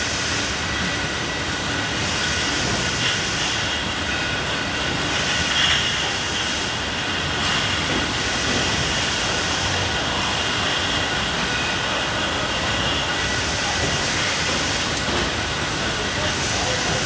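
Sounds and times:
machinery hiss: 0:00.0 - 0:17.0.

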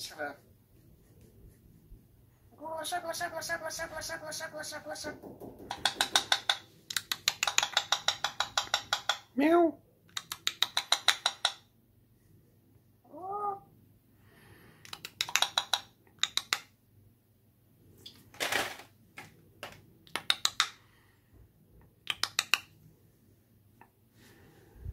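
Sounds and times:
parrot clicking chatter: 0:05.7 - 0:09.3, 0:10.1 - 0:11.7, 0:14.9 - 0:16.7.

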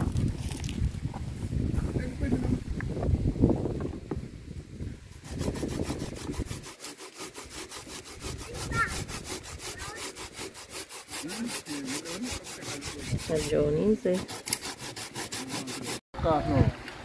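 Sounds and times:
food grated on metal grater: 0:05.2 - 0:16.0.

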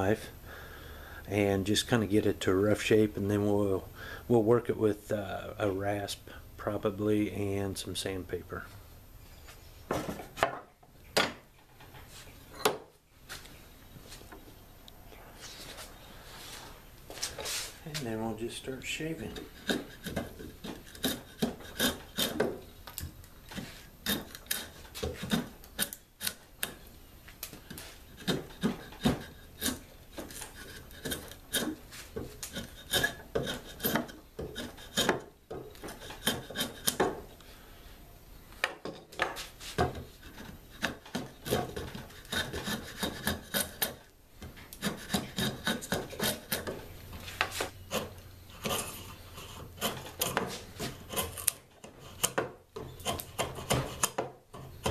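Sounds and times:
draw knife scraping wood: 0:19.3 - 0:22.5, 0:23.5 - 0:26.4, 0:27.7 - 0:37.1, 0:39.8 - 0:44.0, 0:44.7 - 0:46.8, 0:47.4 - 0:54.9.

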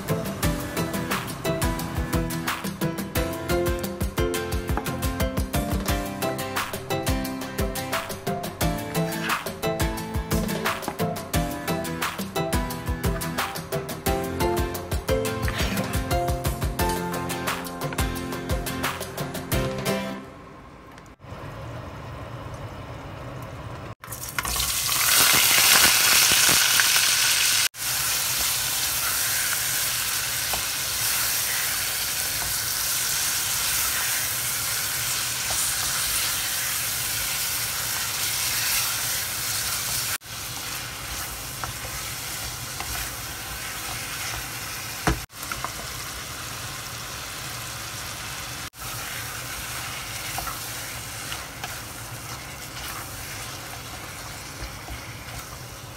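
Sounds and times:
onion sizzling in hot oil: 0:07.4 - 0:10.8, 0:24.0 - 0:55.9
wooden spoon stirring: 0:40.6 - 0:45.9, 0:48.8 - 0:55.9.

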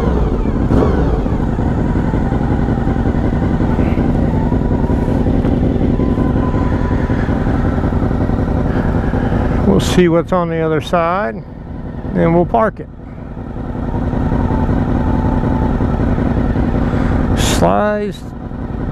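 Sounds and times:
motorcycle engine running at low revs: 0:00.0 - 0:18.9.

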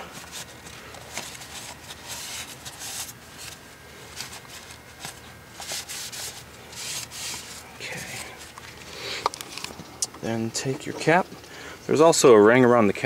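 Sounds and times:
towel rubbing and rustling: 0:00.0 - 0:08.5.

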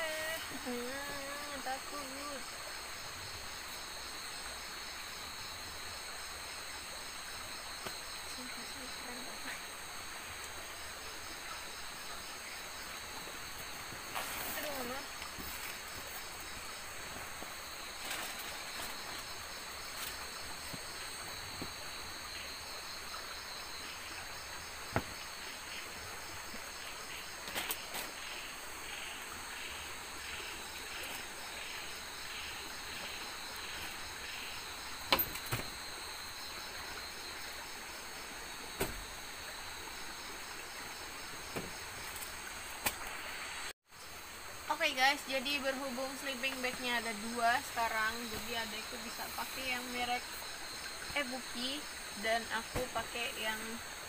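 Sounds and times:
crickets and insects trilling: 0:00.0 - 0:54.0
pulsed insect call: 0:00.0 - 0:54.0.

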